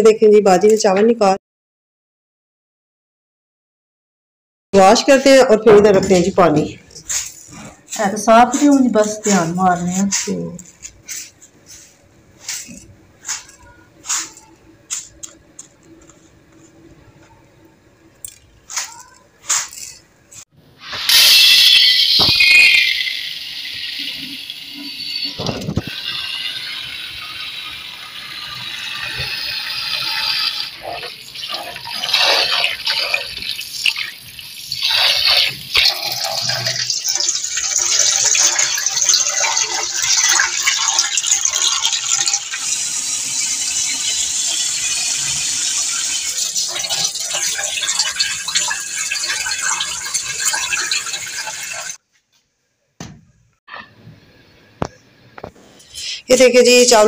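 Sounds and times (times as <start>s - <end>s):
water running and splashing: 23.1s - 52.0s.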